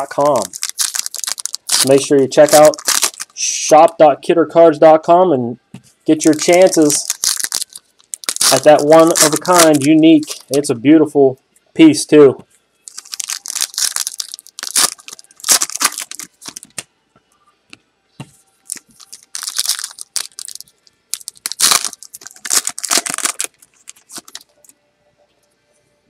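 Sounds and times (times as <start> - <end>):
foil wrapper crinkling and tearing: 0.0 - 3.4, 6.2 - 10.7, 12.9 - 16.8, 18.7 - 24.6.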